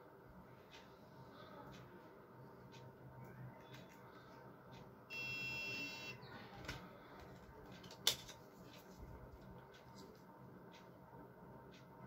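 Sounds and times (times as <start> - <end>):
high-pitched buzzer beep: 5.1 - 6.2.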